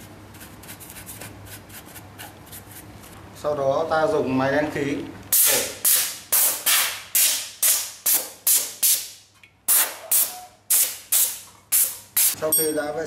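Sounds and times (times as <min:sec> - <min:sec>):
compressed air blasts: 0:05.3 - 0:12.4.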